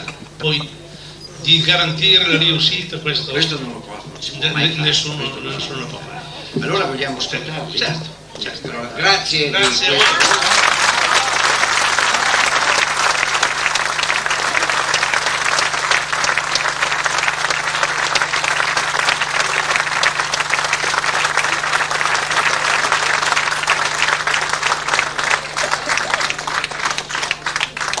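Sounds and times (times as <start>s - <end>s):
audience applauding: 9.5s - 28.0s.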